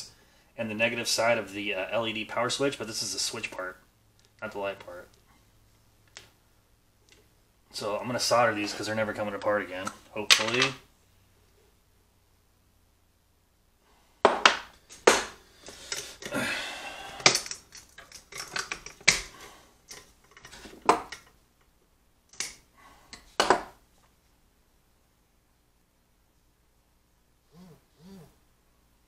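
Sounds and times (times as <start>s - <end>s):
tools clicking and knocking: 17.2s - 19.3s, 19.9s - 21.7s.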